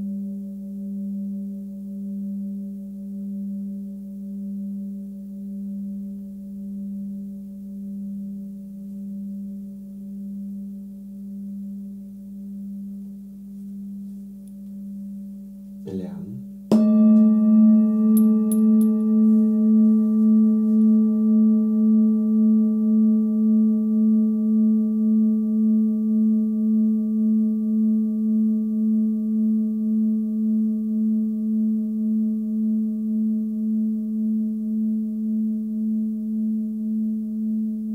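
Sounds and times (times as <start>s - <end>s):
higher singing bowl struck: 16.7s - 33.4s
singing bowl ringing: 16.7s - 37.9s.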